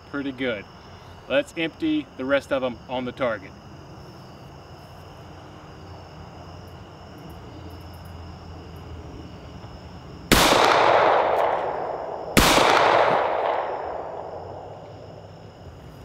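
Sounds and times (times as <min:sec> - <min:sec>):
pistol shots echoing: 0:10.3 - 0:15.3.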